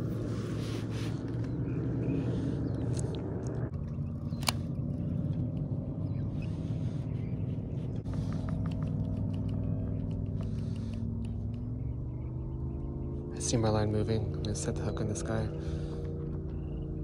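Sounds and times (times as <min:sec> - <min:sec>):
sharp click: 0:04.3 - 0:04.7.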